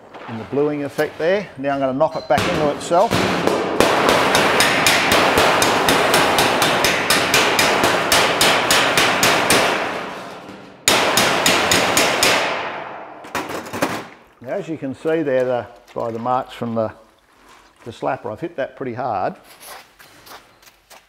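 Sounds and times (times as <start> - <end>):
hammer striking steel panel: 1.9 - 14.1.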